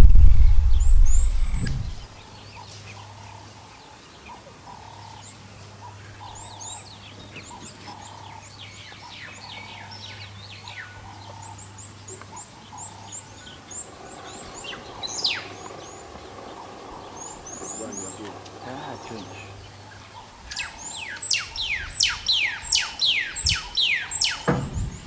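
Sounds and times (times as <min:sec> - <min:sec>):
loud low rumble: 0:00.0 - 0:02.1
faint steady hum: 0:00.0 - 0:07.0
wild dogs twittering chirps: 0:05.8 - 0:25.0
wild dogs squealing: 0:12.8 - 0:20.9.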